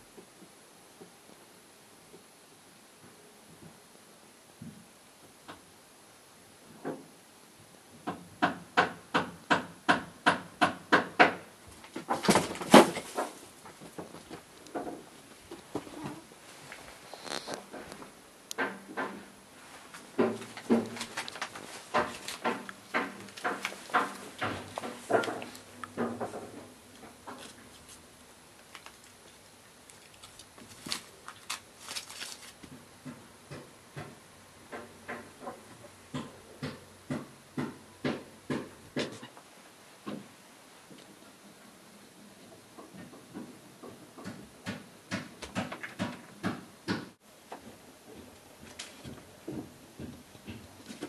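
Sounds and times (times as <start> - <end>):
kitten scratching on a rug: 16.9 - 17.7
even knocks: 20.0 - 27.6.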